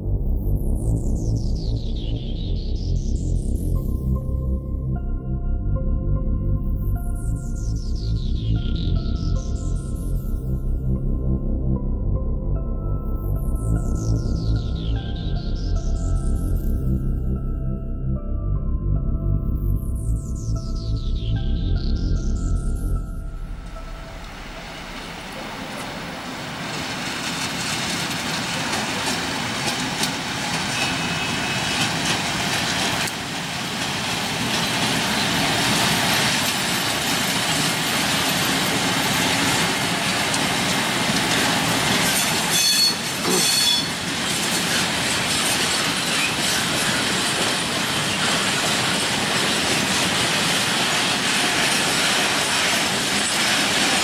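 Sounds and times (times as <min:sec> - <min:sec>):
diesel locomotive running: 0:00.0 - 0:54.0
freight wagons rolling on rails: 0:23.6 - 0:54.0
high-pitched metallic squeals: 0:41.6 - 0:50.3.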